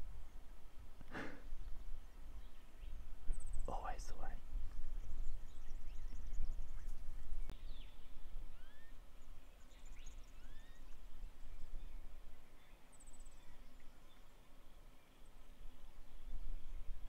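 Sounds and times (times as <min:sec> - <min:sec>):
wind rumble on microphone: 0:00.0 - 0:12.4, 0:15.6 - 0:17.0
small birds chirping: 0:00.0 - 0:17.0.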